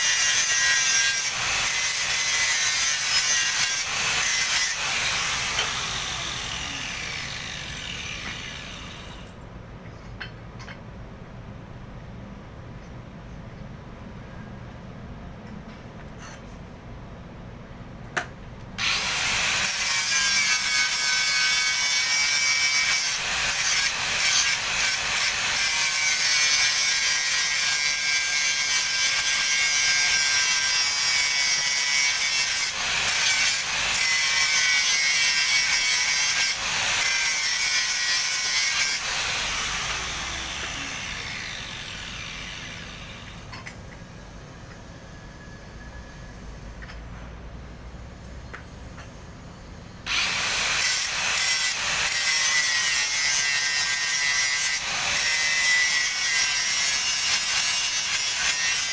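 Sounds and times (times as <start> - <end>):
angle grinder on steel: 0.0 - 9.3, 18.8 - 43.8, 50.1 - 58.9.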